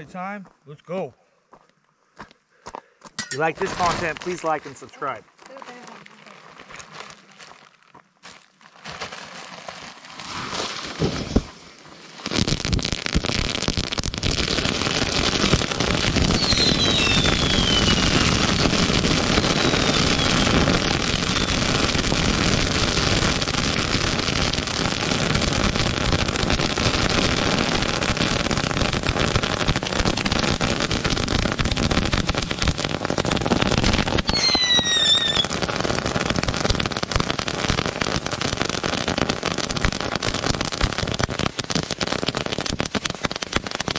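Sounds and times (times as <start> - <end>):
fireworks crackling and popping: 3.1 - 43.9
firework bang: 10.3 - 11.5, 12.3 - 23.2, 33.6 - 36.7
falling firework whistles: 15.1 - 22.2, 33.7 - 35.9.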